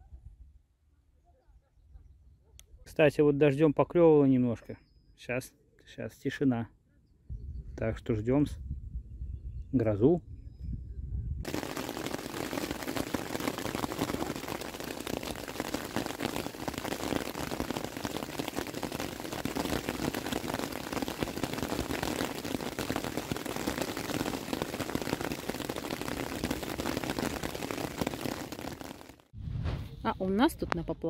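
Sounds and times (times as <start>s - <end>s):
heavy rain falling: 11.5s - 29.3s.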